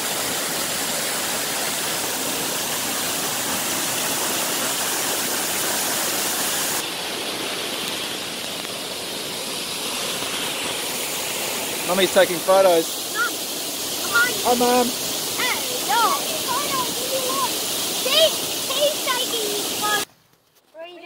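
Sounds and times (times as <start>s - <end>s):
waterfall rushing: 0.0s - 20.1s.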